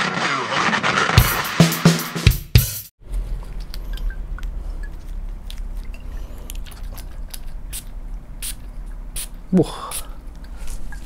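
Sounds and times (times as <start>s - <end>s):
low steady hum: 3.0s - 11.0s.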